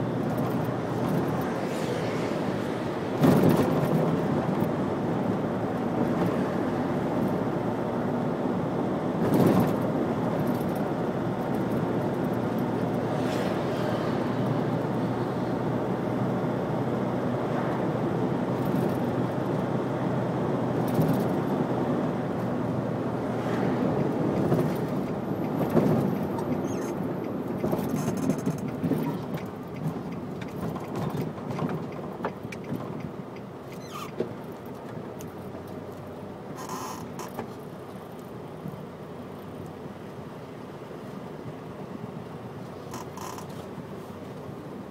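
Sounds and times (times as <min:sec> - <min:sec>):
car road and engine noise: 0:00.0 - 0:44.9.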